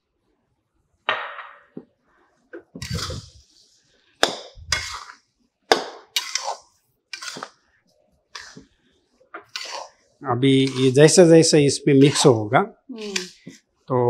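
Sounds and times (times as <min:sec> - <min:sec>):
metal spatula clanking on pan: 0:04.2 - 0:05.1, 0:05.7 - 0:06.6, 0:09.4 - 0:09.9, 0:10.6 - 0:11.0, 0:12.0 - 0:12.4.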